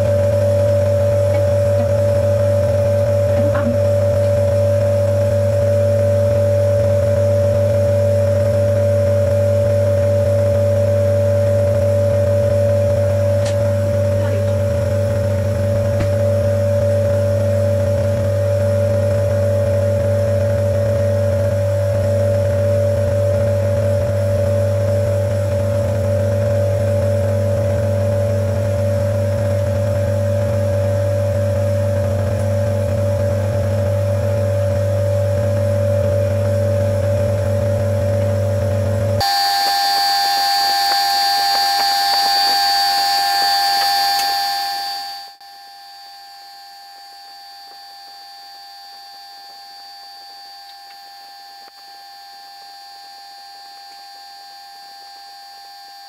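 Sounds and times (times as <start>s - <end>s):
nebulizer motor hum: 0.0s - 56.0s
steady high tones: 35.4s - 53.9s.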